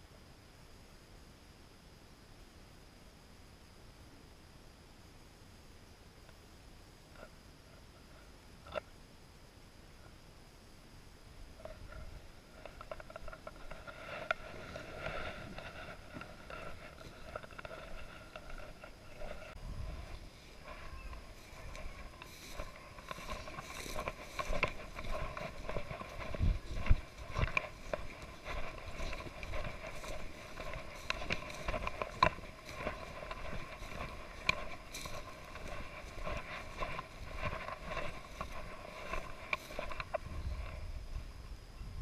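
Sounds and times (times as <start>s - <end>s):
footsteps in dry grass: 11.6s - 41.4s.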